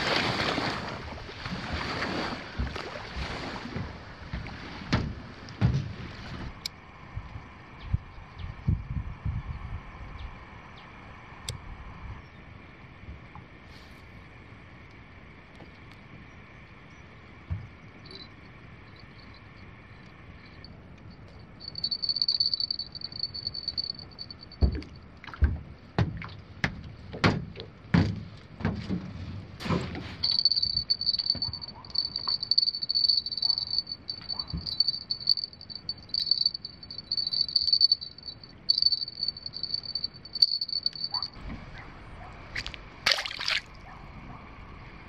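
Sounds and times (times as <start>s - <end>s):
knocks and thumps: 3.7s - 6.5s, 24.6s - 32.6s
night insects trilling: 21.3s - 24.5s, 30.2s - 41.4s.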